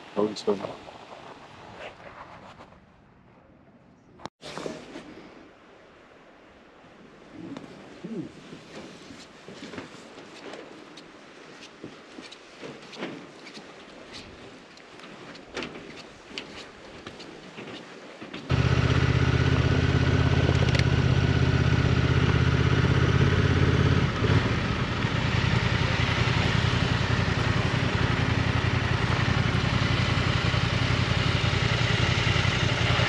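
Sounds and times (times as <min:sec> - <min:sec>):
motorcycle engine running: 0:18.5 - 0:33.0.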